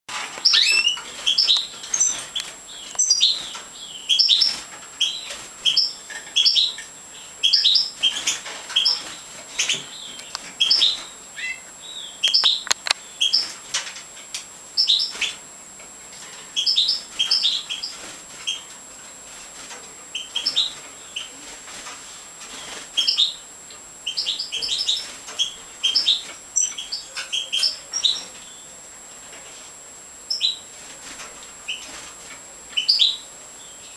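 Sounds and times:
goldfinches twittering: 0.4 - 13.6, 14.7 - 15.4, 16.4 - 18.7, 20.1 - 21.4, 22.6 - 28.8, 30.2 - 30.7, 32.7 - 33.9.

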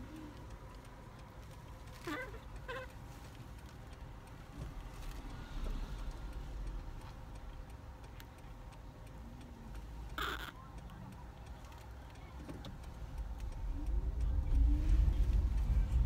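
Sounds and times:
car engine and road rumble: 0.0 - 16.0
turn signal ticking: 0.0 - 16.0
baby monkey squeaks: 10.2 - 10.6.

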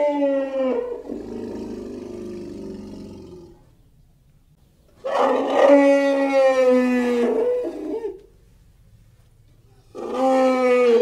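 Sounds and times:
loud creature roar: 0.0 - 3.6, 5.1 - 8.2, 9.9 - 11.0
low growl: 0.4 - 3.8.

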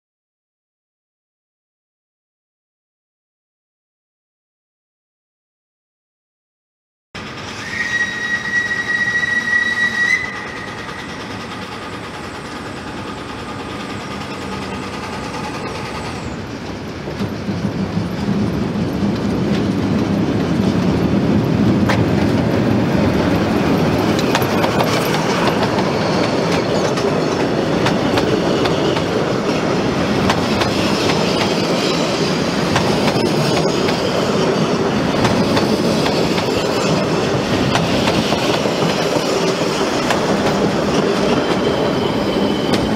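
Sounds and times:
steam locomotive whistle: 7.2 - 13.1
train passing: 7.2 - 42.9.

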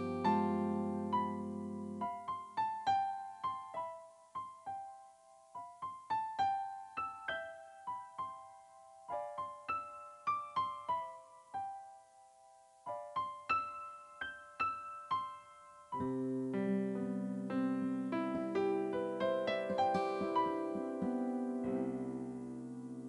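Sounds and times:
low held piano chord: 0.0 - 2.5
piano melody: 0.0 - 23.0.

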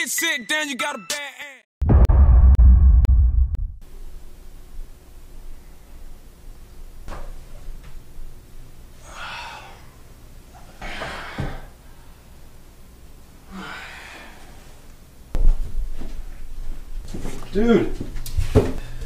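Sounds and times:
sudden low thud: 1.8 - 3.8
low rumble: 1.8 - 4.8
man sighing heavily: 10.8 - 11.8, 13.5 - 14.6.

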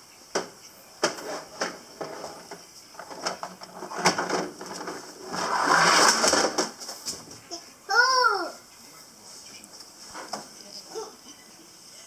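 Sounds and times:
toy wheels rattling down slide: 3.0 - 6.8.

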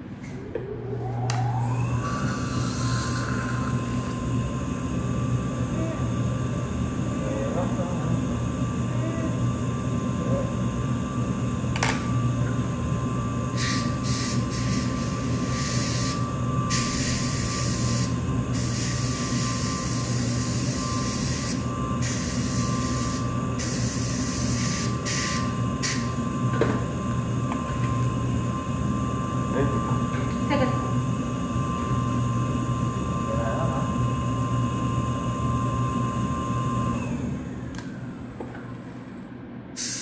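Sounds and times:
dental suction humming and whining: 0.0 - 40.0
dental instrument spray hissing: 13.6 - 26.0, 39.8 - 40.0.

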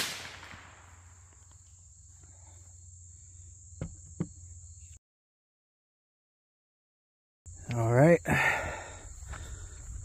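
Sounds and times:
rifle shot echo: 0.0 - 1.2
insects chirring: 0.0 - 5.0, 7.5 - 10.0.

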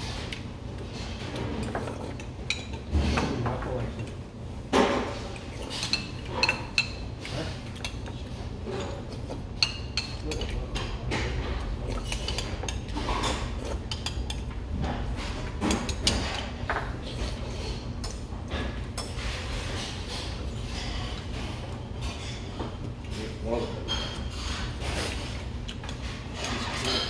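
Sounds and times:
slurping and chewing: 24.5 - 27.0.

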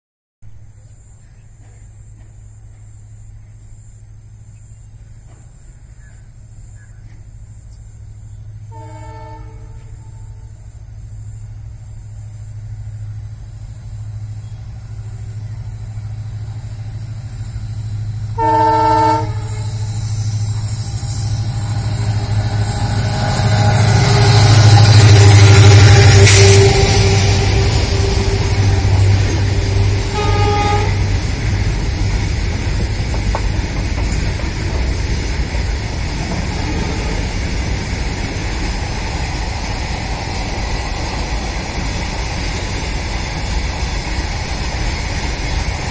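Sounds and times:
locomotive engine drone: 0.5 - 45.9
rush of passing train: 0.5 - 45.9
locomotive horn blasts: 8.7 - 10.5, 18.4 - 19.9, 22.1 - 31.6.

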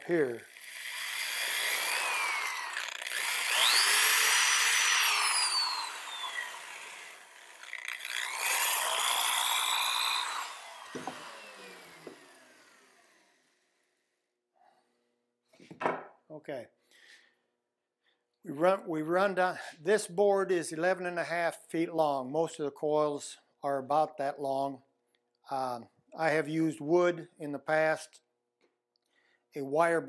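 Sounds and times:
electric drill with wire brush: 0.1 - 13.9.

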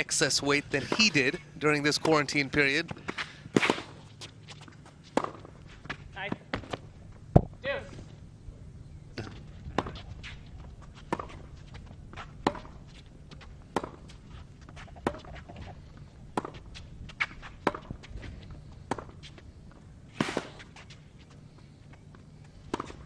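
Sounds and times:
racket hitting tennis ball: 3.0 - 6.8, 11.0 - 11.6, 12.2 - 12.9, 13.7 - 15.6, 16.3 - 18.1, 20.1 - 21.0, 22.7 - 23.0.

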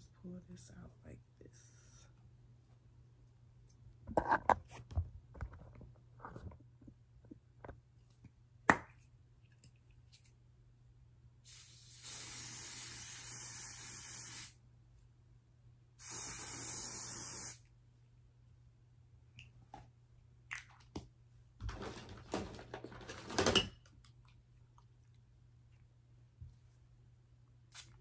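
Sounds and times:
aerosol spray hissing: 11.5 - 14.6, 16.0 - 17.6.

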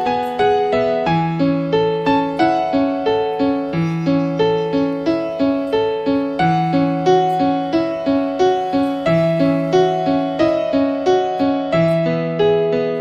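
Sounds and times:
electric piano melody: 0.0 - 13.0.

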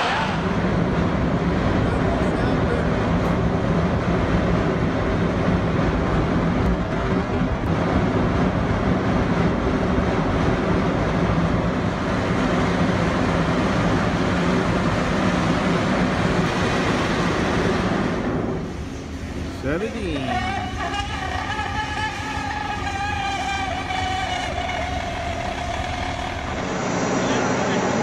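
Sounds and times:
steady low hum: 0.0 - 28.0
well blowout roaring: 0.0 - 28.0.

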